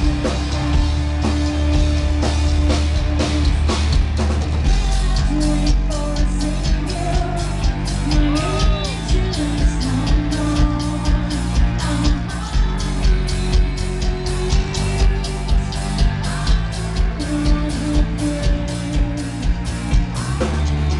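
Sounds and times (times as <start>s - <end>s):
woman singing: 0.0s - 4.0s, 4.6s - 20.9s
bass guitar: 0.0s - 20.9s
distorted electric guitar: 0.0s - 20.9s
drum beat: 0.0s - 20.9s.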